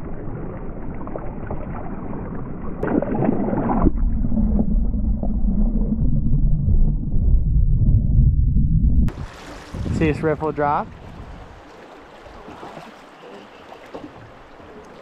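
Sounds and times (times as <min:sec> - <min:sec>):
muffled underwater rumble and bubbling: 0:00.0 - 0:09.2
river water sloshing and splashing: 0:09.1 - 0:15.0.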